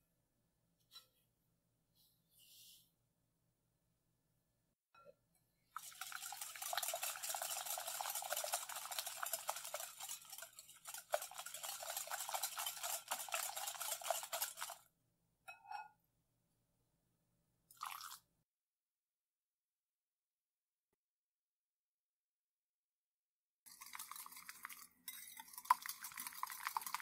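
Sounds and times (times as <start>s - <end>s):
whisk rattling in glass bowl: 5.8s - 14.9s, 23.7s - 27.0s.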